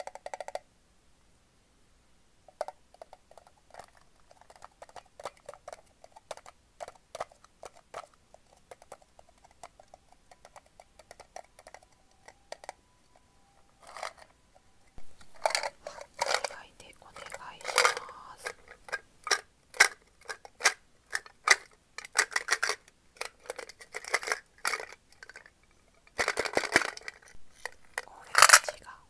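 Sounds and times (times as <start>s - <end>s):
candy clicking inside metal tin: 15.2s - 29.0s.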